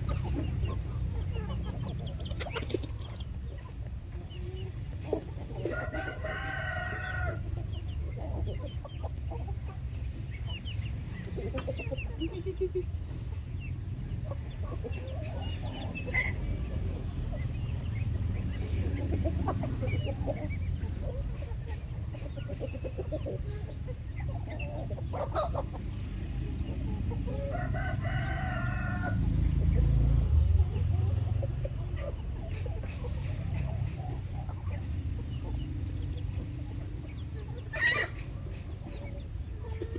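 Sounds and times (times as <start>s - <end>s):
chickens clucking: 0.0s - 39.9s
rapid high chirping: 0.9s - 4.9s, 8.7s - 13.4s, 17.2s - 23.5s, 35.6s - 39.9s
rooster crowing: 5.7s - 7.4s, 27.4s - 29.8s.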